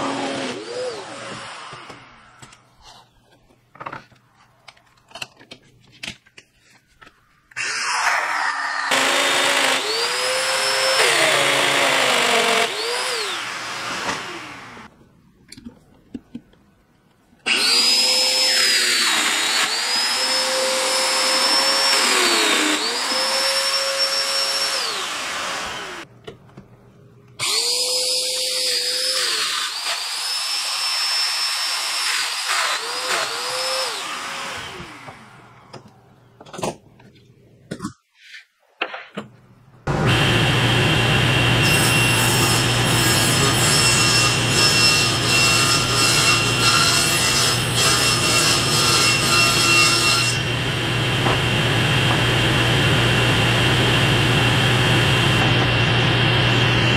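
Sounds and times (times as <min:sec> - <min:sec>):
table saw ripping wood: 0:07.5 - 0:14.9, 0:39.9 - 0:50.5.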